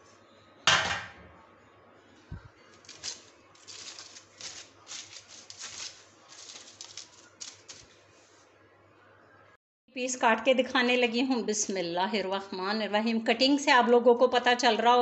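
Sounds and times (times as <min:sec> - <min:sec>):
aluminium foil crinkling: 0:02.7 - 0:08.0.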